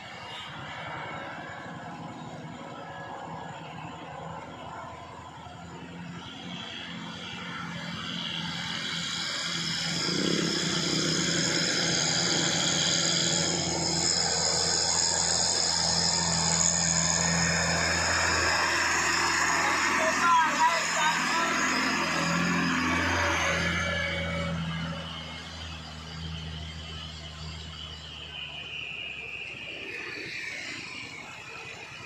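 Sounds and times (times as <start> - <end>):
truck diesel engine labouring uphill: 0.0 - 32.0.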